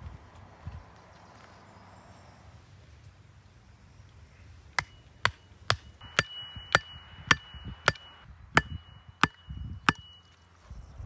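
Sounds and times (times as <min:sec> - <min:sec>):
axe striking wooden stakes: 0:04.8 - 0:10.2.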